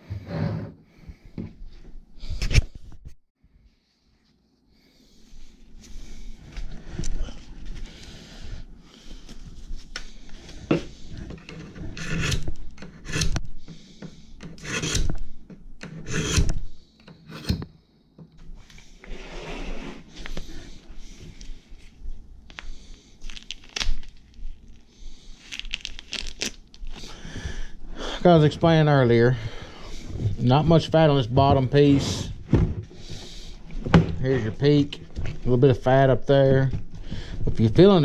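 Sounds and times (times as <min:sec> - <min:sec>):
rubber gloves rubbing and rustling: 0:03.6 - 0:12.8, 0:18.5 - 0:38.0.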